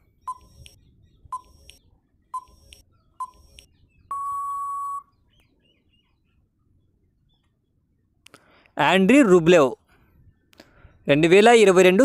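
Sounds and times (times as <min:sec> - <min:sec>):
long steady electronic tone: 0:00.2 - 0:05.1
short beeps: 0:02.4 - 0:05.1.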